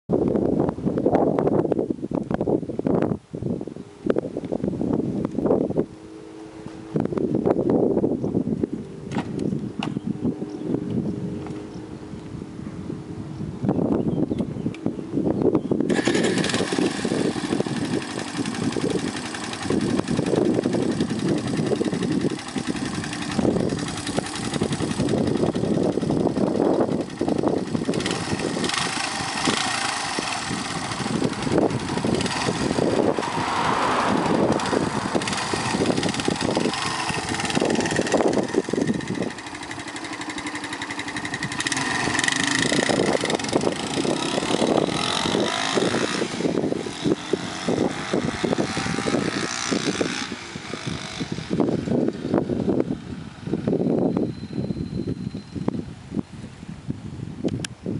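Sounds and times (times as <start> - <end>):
motorcycle engine idling unevenly: 16.0 - 33.2, 34.2 - 46.9.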